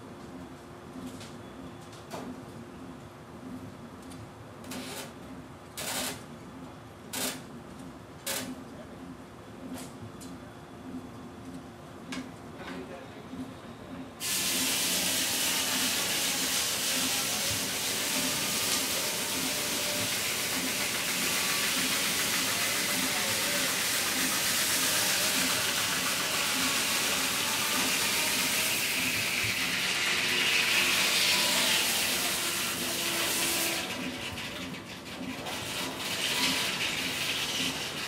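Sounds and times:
circular saw cutting log: 14.2s - 38.0s.

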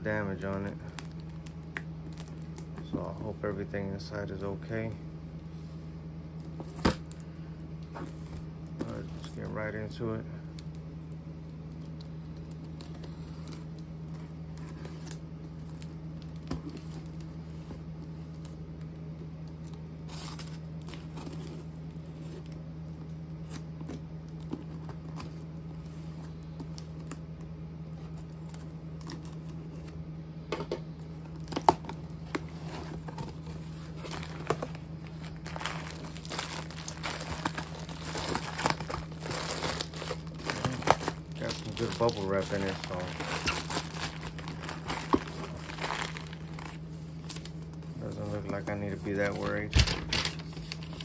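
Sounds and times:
steady low hum: 0.0s - 51.0s
cardboard and bubble wrap rustling: 7.8s - 9.6s, 20.0s - 22.6s, 30.6s - 51.0s
tape tearing: 35.4s - 46.8s.

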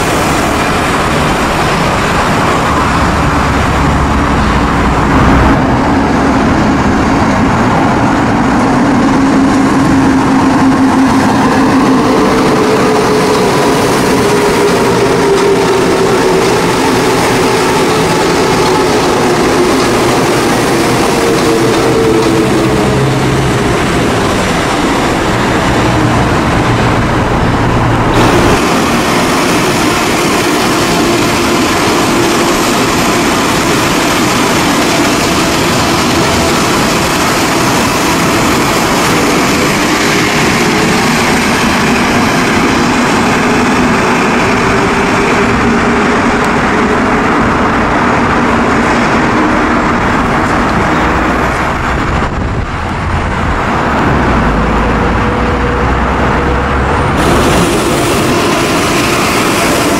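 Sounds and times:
metro train running past: 0.0s - 59.9s.

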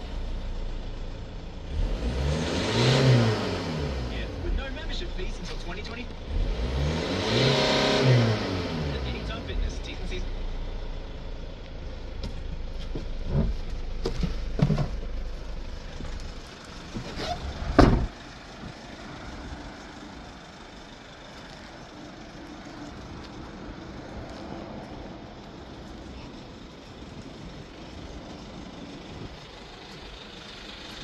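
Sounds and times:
diesel engine idling: 0.0s - 2.3s, 2.9s - 7.0s, 7.8s - 31.0s
engine knocks: 12.2s - 18.8s
door shutting with a bang: 17.7s - 18.2s.

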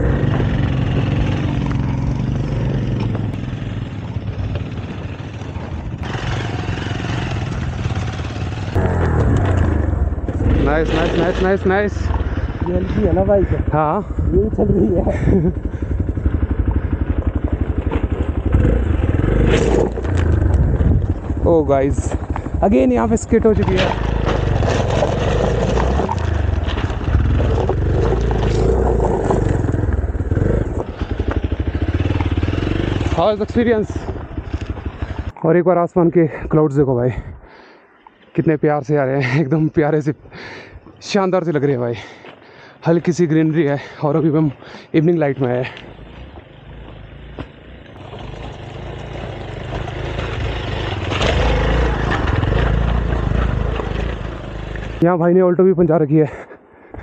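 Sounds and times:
motorcycle engine revving: 0.0s - 35.4s, 44.6s - 55.0s
stones clattering under tyre: 23.5s - 32.4s.

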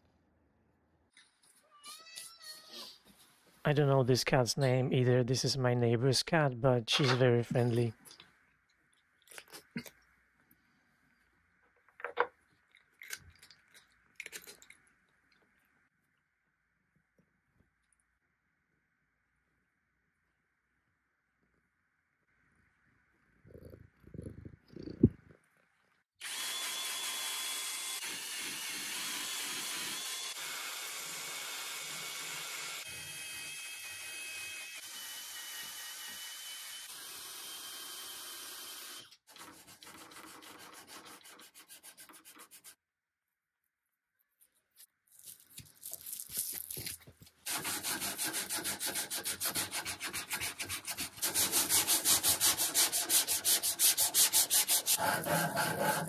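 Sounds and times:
hand sanding rubbing strokes: 39.4s - 42.8s, 47.5s - 56.0s.

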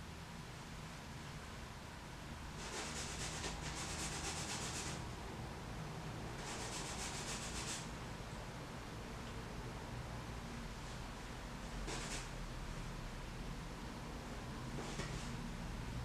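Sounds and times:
paintbrush scrubbing on canvas: 2.6s - 5.0s, 6.4s - 7.9s.

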